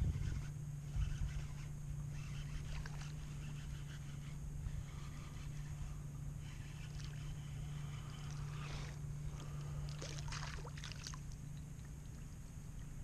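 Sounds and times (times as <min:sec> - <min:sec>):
steady low hum: 0:00.0 - 0:13.0
fish splashing in water: 0:09.8 - 0:12.2.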